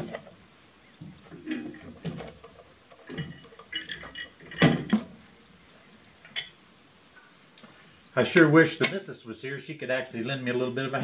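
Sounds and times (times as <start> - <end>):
metal clinks and knocks: 1.0 - 5.2.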